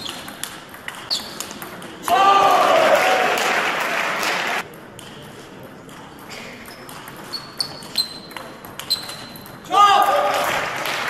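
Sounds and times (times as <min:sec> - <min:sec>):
table tennis ball pinging: 0:04.6 - 0:09.6.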